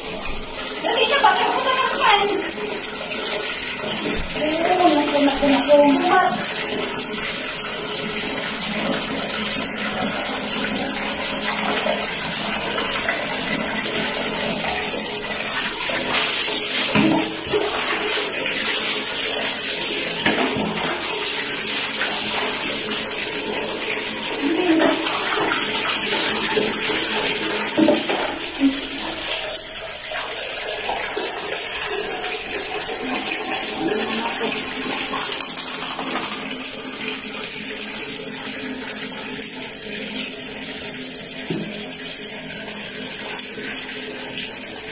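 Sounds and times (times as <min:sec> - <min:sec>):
water pouring into plastic bucket: 0:00.0 - 0:44.9.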